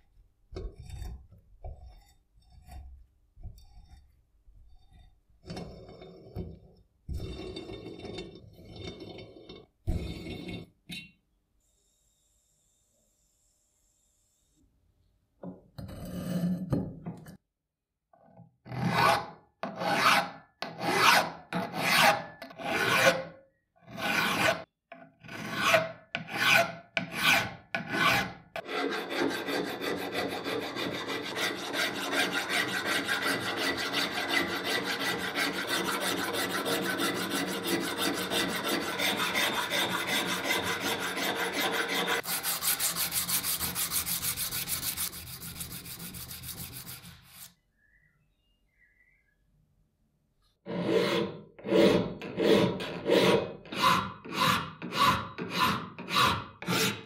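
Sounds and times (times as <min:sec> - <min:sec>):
file rasping on metal: 0:00.6 - 0:06.4, 0:18.7 - 0:47.5, 0:50.7 - 0:57.0.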